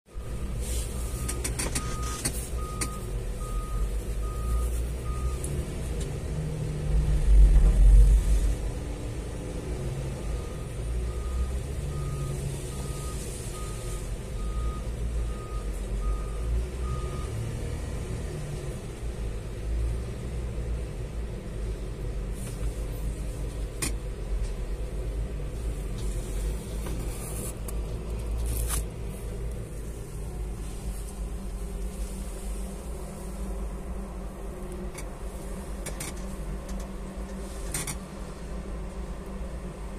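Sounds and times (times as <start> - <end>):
reversing alarm beeping: 0.1 - 5.4, 10.1 - 17.4
diesel engine running: 0.1 - 39.9.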